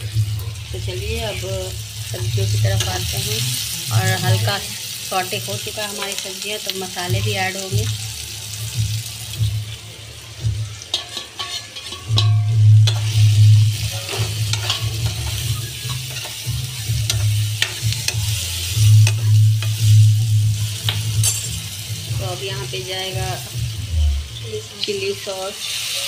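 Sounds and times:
vegetables sizzling in oil: 0.0s - 26.0s
spatula scraping a wok: 9.0s - 24.9s.

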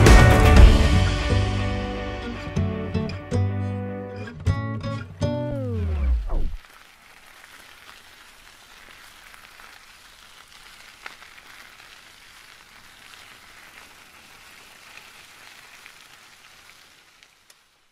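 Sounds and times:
faint steady hiss: 5.2s - 17.9s.

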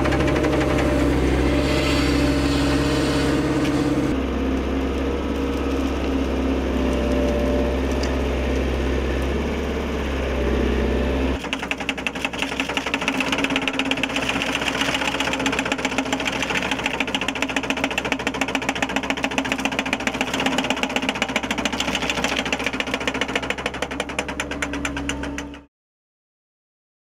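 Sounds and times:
blade cutter clattering: 0.0s - 4.2s, 11.4s - 25.6s
excavator hum: 0.0s - 25.7s.

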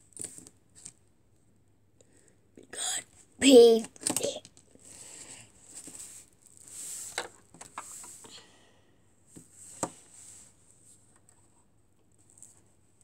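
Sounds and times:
plastic toys scuffing and rustling: 5.6s - 8.3s.

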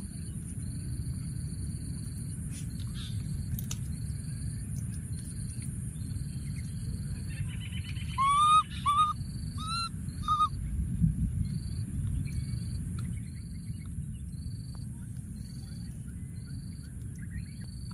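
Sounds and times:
insect chirps: 0.0s - 10.7s, 11.4s - 17.9s
baby monkey high calls: 7.3s - 10.6s.

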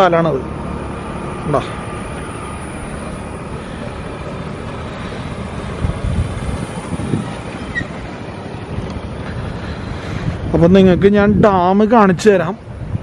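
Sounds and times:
wind blowing across microphone: 4.8s - 13.0s.

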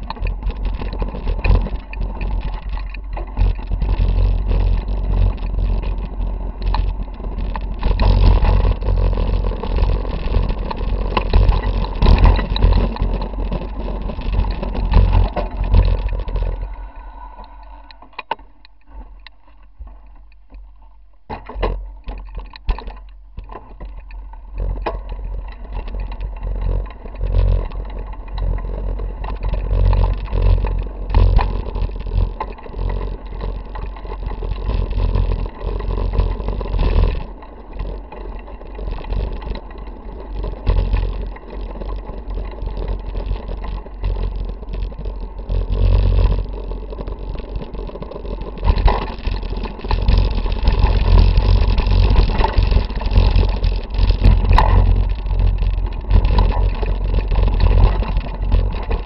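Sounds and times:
bike knocks and rattles: 0.0s - 16.6s, 21.2s - 59.0s.

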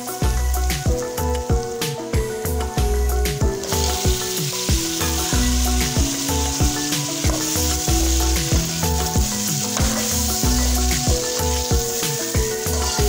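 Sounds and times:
background music with beat: 0.0s - 13.0s
potatoes sizzling in oil: 0.0s - 13.0s
spatula stirring: 3.6s - 13.0s.

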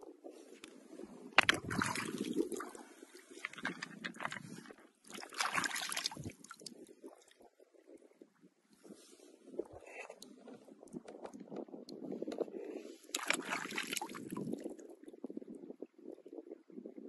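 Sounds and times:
sharp clicks of rocks: 1.4s - 2.3s
water sloshing: 1.4s - 6.8s, 13.1s - 14.6s.

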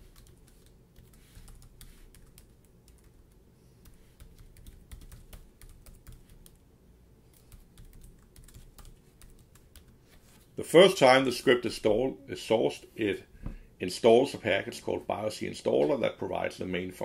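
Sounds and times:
faint keyboard typing: 0.0s - 6.7s, 7.3s - 10.2s.

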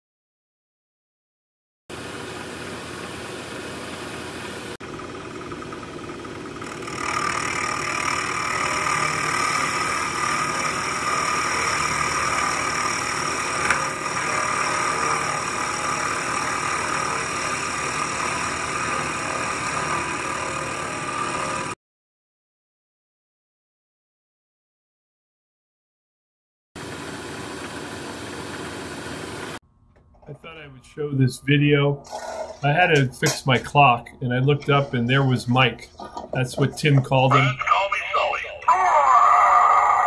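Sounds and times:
milling machine cutting metal: 6.6s - 21.8s, 32.0s - 33.7s.

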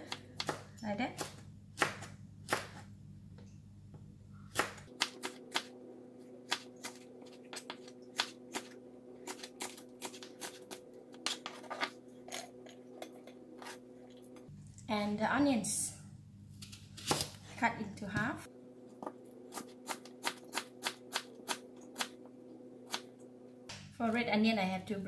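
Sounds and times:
knife chopping on plastic board: 0.0s - 0.7s.

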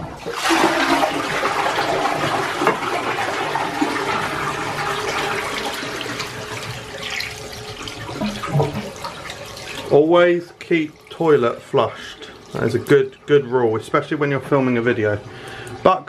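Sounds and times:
toilet flushing: 0.0s - 16.0s
tap water running over hand: 0.1s - 10.0s, 10.6s - 13.2s.

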